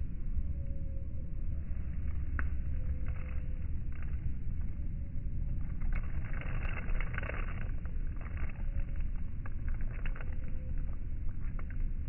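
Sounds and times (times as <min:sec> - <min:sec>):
wind rumbling on microphone: 0:00.0 - 0:12.0
rain pattering: 0:05.7 - 0:12.0.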